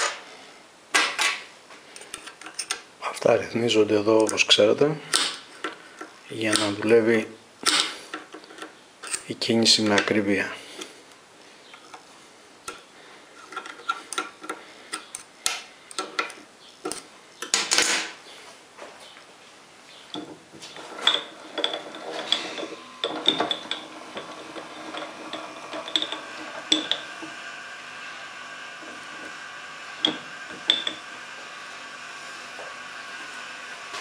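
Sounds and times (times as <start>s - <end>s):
metal clinking with ringing: 21.0s - 27.1s.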